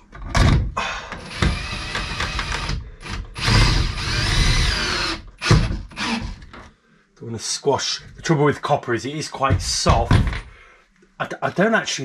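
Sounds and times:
cordless drill motor: 1.2s - 6.6s.

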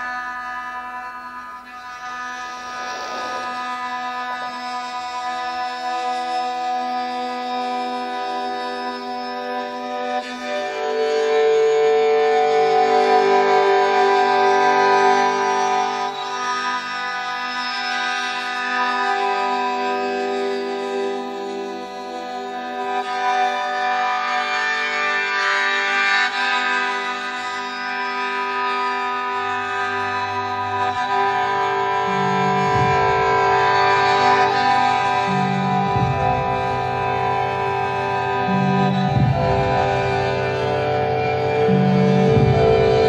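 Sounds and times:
drone of held tones: 0.0s - 5.2s, 27.2s - 43.0s
low bass notes: 30.8s - 43.0s.

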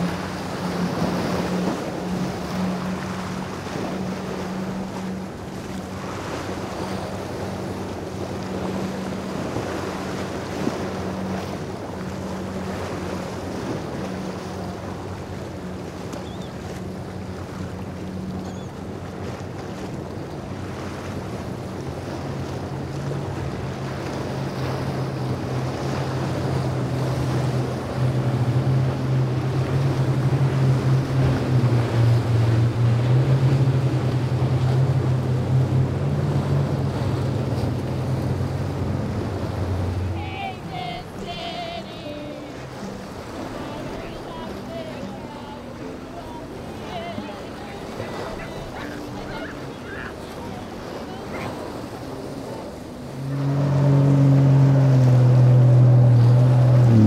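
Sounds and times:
boat engine drone: 0.0s - 57.0s
hull spray and waves rushing: 0.0s - 57.0s
deeper engine note: 21.3s - 40.8s, 50.3s - 57.0s.

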